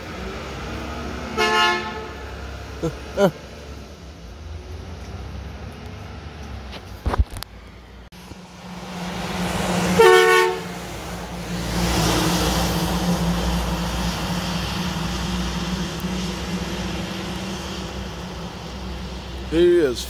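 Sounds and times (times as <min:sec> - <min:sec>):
tyres hissing on wet road: 0:00.0 - 0:07.6, 0:08.2 - 0:20.0
truck diesel engine: 0:00.0 - 0:20.0
short horn blast: 0:01.3 - 0:02.2, 0:10.0 - 0:10.7.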